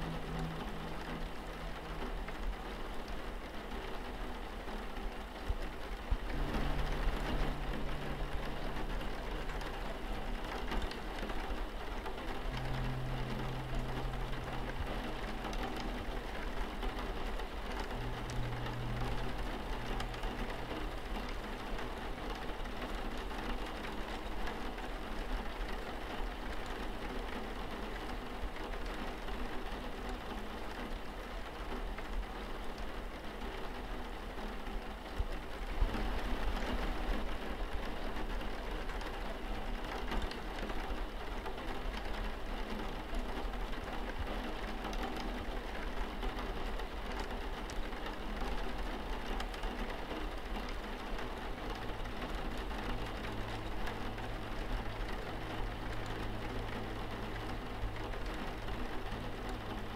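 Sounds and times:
low steady rumble: 0.0s - 59.9s
rain pattering on window glass: 0.0s - 59.9s.

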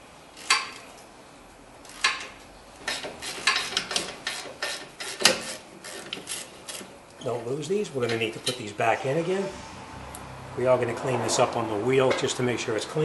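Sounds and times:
wrench clicking on metal bolts: 0.4s - 0.8s, 1.9s - 6.9s.

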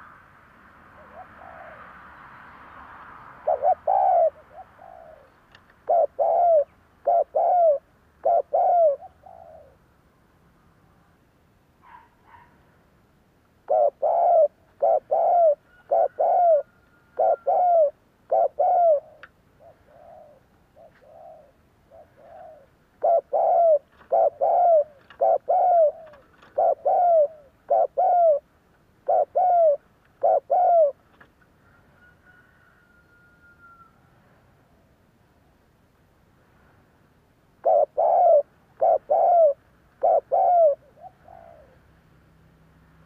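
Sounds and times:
dove cooing: 1.0s - 1.9s, 3.4s - 9.8s, 13.6s - 31.0s, 37.6s - 41.9s.

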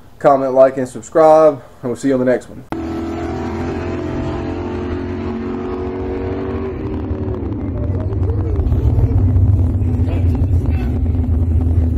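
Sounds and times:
car engine running: 2.7s - 11.9s.

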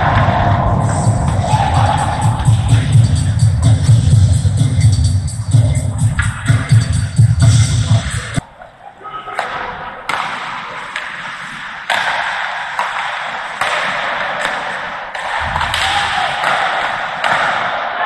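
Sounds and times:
hockey sticks and puck tapping: 6.1s - 6.8s, 9.3s - 18.0s.

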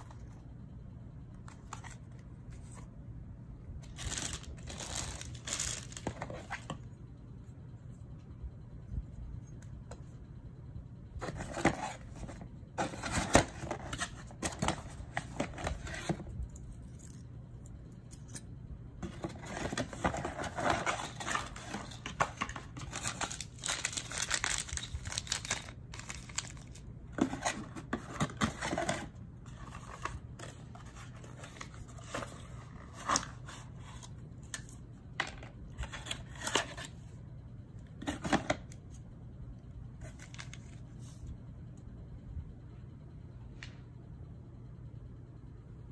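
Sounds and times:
plastic bag rustling: 3.9s - 6.4s
small metal parts clinking: 19.4s - 26.9s.

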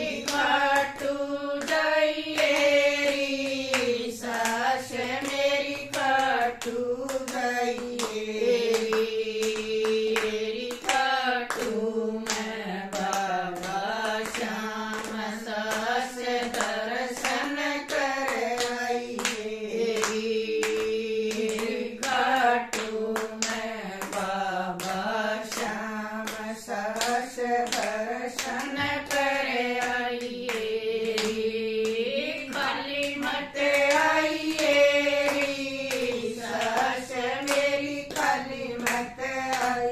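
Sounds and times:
rhythmic hand-clapping: 0.0s - 39.9s
women singing devotional song: 0.0s - 39.9s.

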